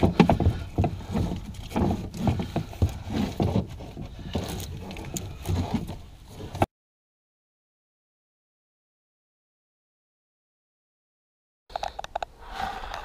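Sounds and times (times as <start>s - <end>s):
cables rustling and tapping on plastic: 0.0s - 6.6s.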